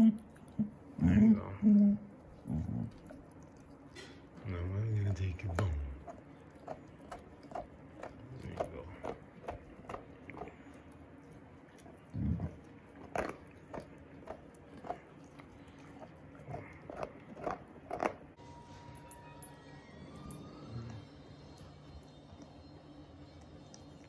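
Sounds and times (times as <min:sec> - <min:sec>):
puppy gnawing a bone: 0:00.0 - 0:18.4, 0:20.1 - 0:24.0.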